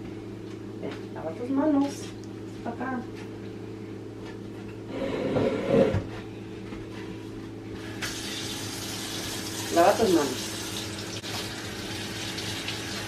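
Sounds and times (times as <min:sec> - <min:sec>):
low steady hum: 0:00.0 - 0:13.0
water running from faucet: 0:08.0 - 0:13.0.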